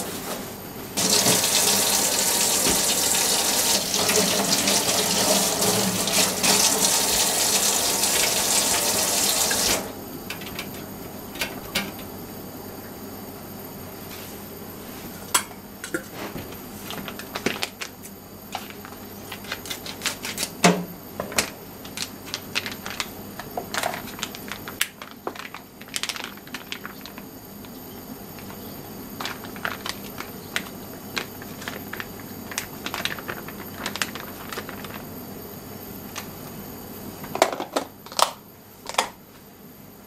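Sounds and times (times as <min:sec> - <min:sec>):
plastic packaging crinkling: 0:16.8 - 0:20.6, 0:21.8 - 0:27.3, 0:29.2 - 0:35.2.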